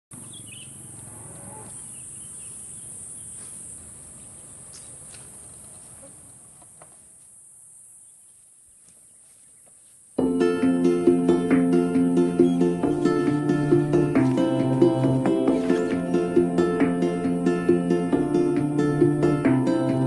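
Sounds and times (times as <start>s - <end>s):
faint bird chirps: 0.2s - 1.0s, 1.7s - 6.3s
insects buzzing: 0.2s - 20.0s
plucked string music: 10.2s - 20.0s.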